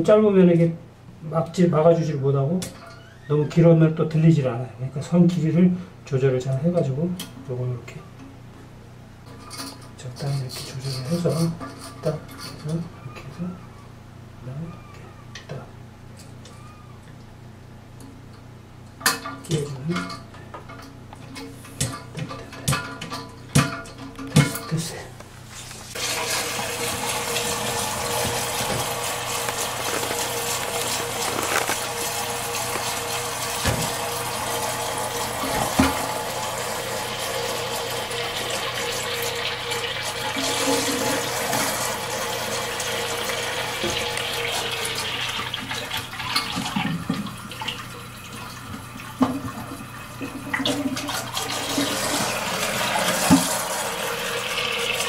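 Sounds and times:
toilet cistern refilling: 0:25.9 - 0:55.0.

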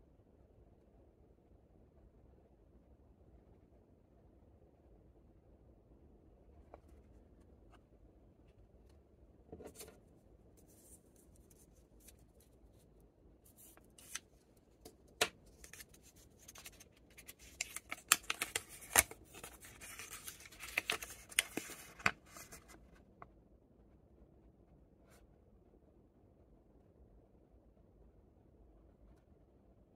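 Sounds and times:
candy wrappers crinkling: 0:14.8 - 0:22.8.

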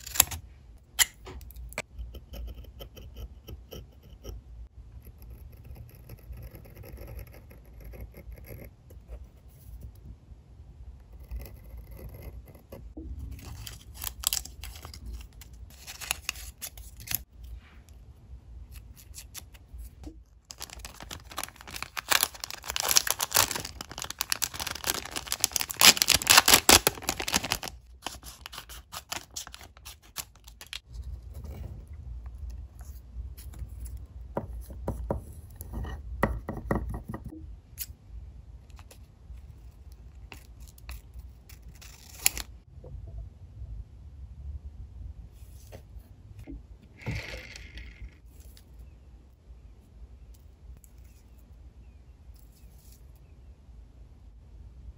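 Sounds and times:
tape being peeled: 0:00.0 - 0:00.4, 0:13.4 - 0:17.4, 0:18.7 - 0:30.9, 0:39.9 - 0:42.5
plastic film crinkling: 0:13.4 - 0:17.2, 0:20.4 - 0:30.8.

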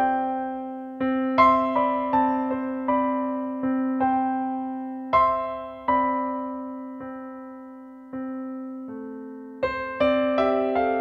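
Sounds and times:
slow piano melody: 0:00.0 - 0:11.0.

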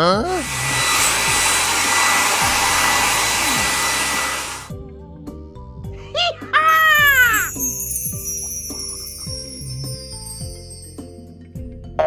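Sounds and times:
air dryer blowing: 0:00.2 - 0:04.8.

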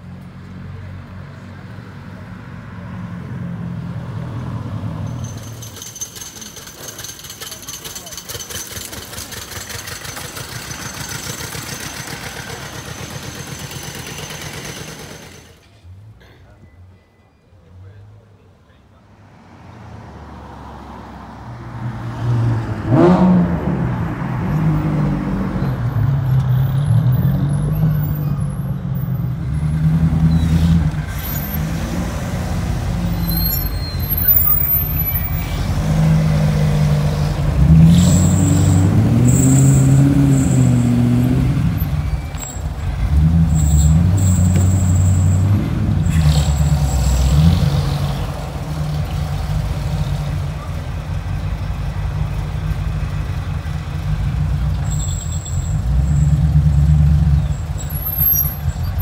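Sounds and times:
car engine revving at low speed: 0:20.3 - 0:25.6.

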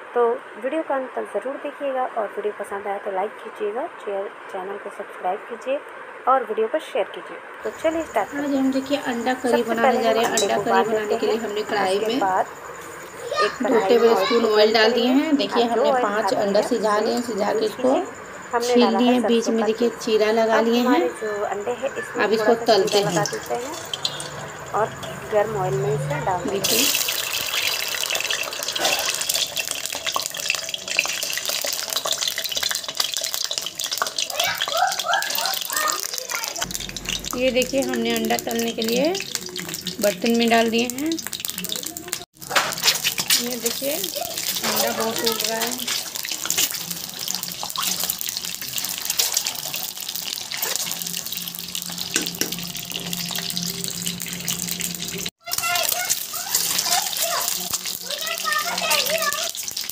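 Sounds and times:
eggs frying in hot oil: 0:07.6 - 0:59.9
oil crackling and popping: 0:22.8 - 0:25.1, 0:26.6 - 0:59.9.

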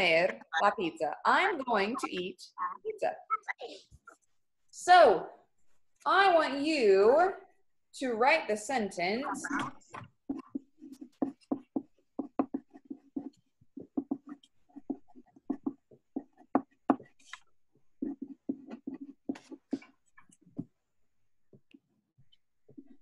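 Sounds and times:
pen writing on paper: 0:09.6 - 0:20.8, 0:22.7 - 0:23.0.

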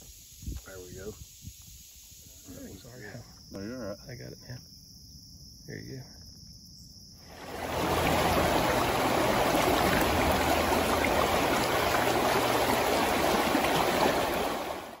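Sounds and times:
river rapids rushing: 0:07.3 - 0:15.0.

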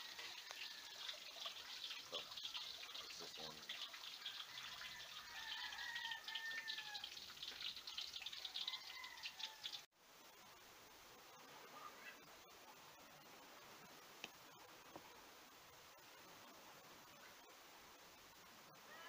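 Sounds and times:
water splashing in a metal sink: 0:00.0 - 0:09.8.

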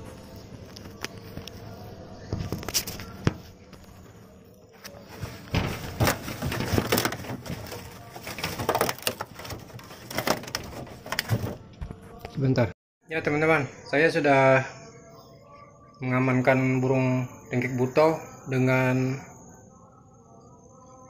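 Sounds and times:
dry leaves crackling and rustling: 0:05.0 - 0:11.5
scrapes and knocks on wood and glass: 0:05.0 - 0:12.0.

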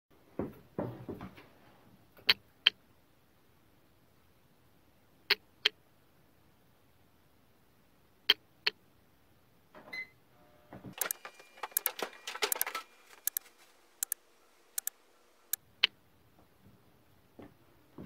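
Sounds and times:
rapid mechanical clicking and rattling: 0:11.0 - 0:14.2, 0:14.8 - 0:15.0.

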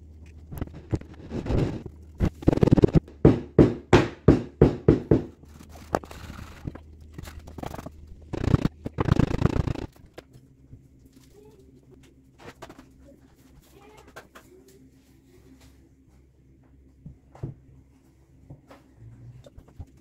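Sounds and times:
hand scraping casting sand: 0:00.6 - 0:03.0.

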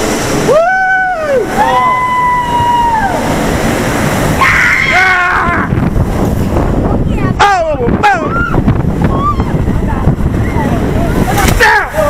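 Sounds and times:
water rushing in slide tube: 0:00.0 - 0:12.0
person yelling: 0:04.4 - 0:05.7.

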